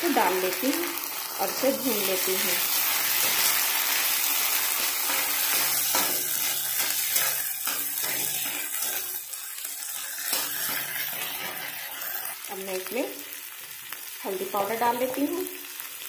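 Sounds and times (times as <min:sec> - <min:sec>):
food sizzling in hot oil: 0:00.0 - 0:16.0
spatula scraping pan: 0:02.4 - 0:12.4.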